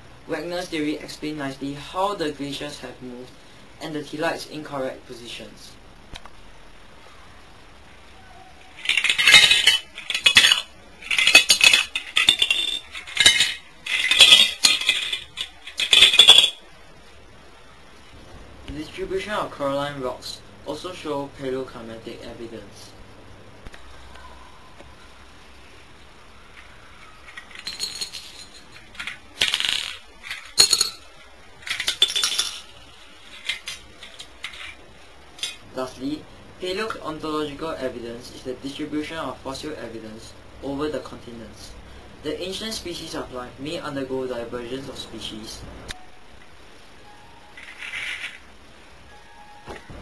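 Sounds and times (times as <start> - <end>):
plastic bricks clattering on tile: 8.7 - 16.6, 26.5 - 34.8, 47.6 - 48.4.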